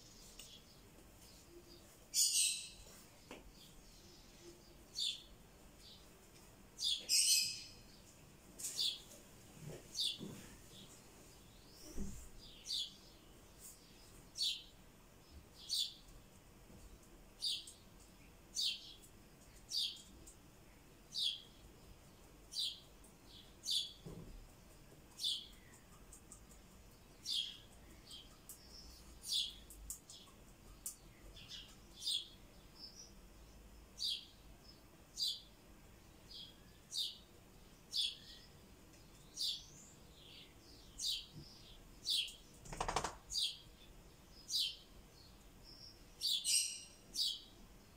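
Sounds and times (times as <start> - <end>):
bird chirping: 0.0 - 6.1, 6.8 - 9.1, 9.9 - 16.1, 16.9 - 47.9.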